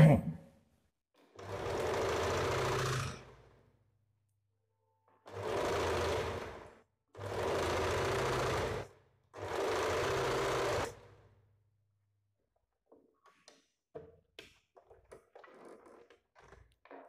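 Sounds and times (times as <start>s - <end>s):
sewing machine stitching: 1.4s - 3.5s, 5.3s - 11.3s.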